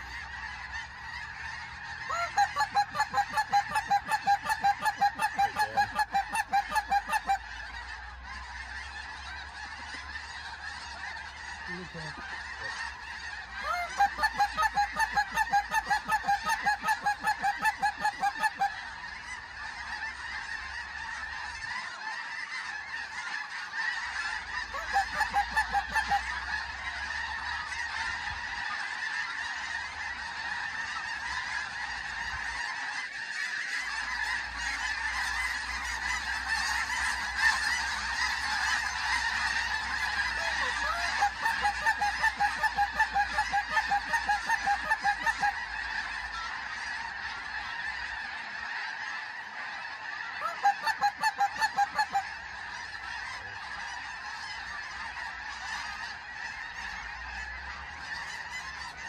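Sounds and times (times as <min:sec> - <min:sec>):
close rapid goose honks: 0:00.0 - 0:59.0
flock of geese honking: 0:00.0 - 0:59.0.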